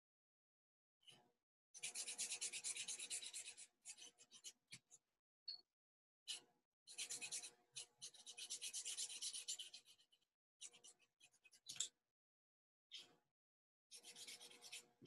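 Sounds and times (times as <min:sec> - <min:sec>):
marker scribbling on paper: 0:01.8 - 0:04.8, 0:06.3 - 0:11.7, 0:13.9 - 0:15.0.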